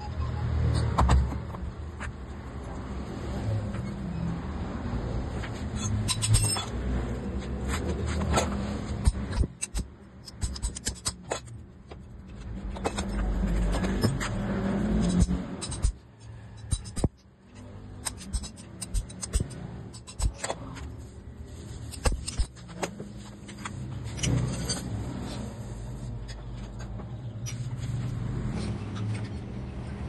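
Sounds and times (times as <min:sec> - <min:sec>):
metal clinks and taps: 0:05.8 - 0:06.8.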